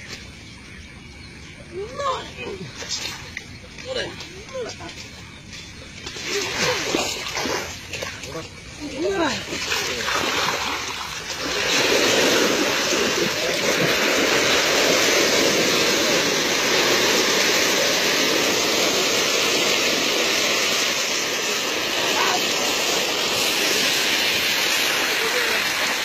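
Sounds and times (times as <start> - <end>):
fish splashing in shallow water: 6.0 - 26.0.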